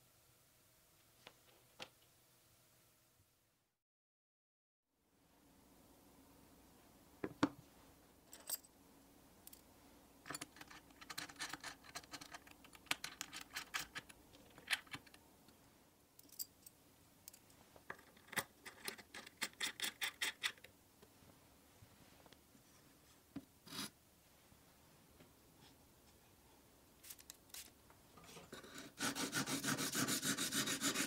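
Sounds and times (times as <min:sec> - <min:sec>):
metallic clicks and scrapes: 0:10.3 - 0:15.2.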